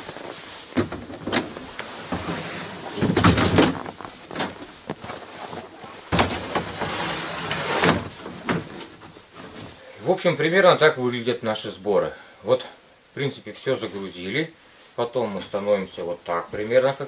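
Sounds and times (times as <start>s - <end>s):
items knocking on van floor: 0.0s - 5.4s, 6.1s - 6.9s
scraping and rustling: 0.0s - 10.2s.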